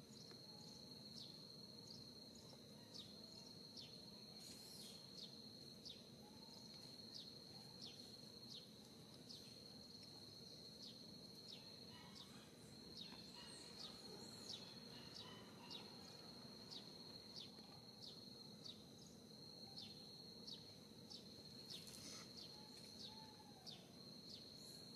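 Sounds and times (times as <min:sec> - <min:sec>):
high-pitched insect drone: 0:03.0 - 0:08.7.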